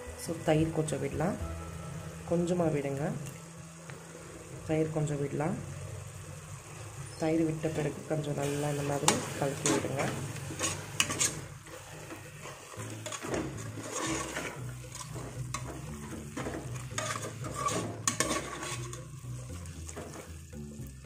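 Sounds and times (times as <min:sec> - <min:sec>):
light sizzle: 0:00.0 - 0:21.0
metal spoon stirring and scraping: 0:07.7 - 0:20.5.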